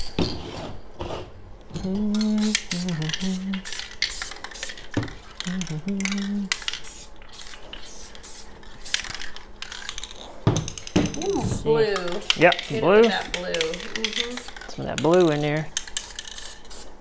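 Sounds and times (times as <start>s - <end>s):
person humming: 1.7s - 3.7s, 5.4s - 6.6s
spray paint can rattling: 2.0s - 11.2s, 11.9s - 17.0s.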